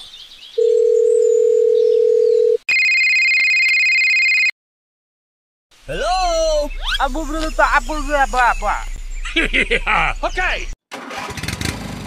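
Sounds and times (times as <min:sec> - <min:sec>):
telephone dial tone: 0:00.6 - 0:04.5.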